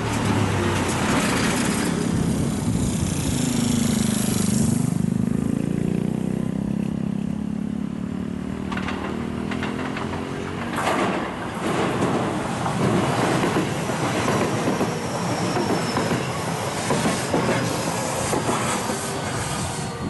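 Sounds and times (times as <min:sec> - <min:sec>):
electric train running noise: 0:08.7 - 0:20.0
hiss: 0:16.1 - 0:20.0.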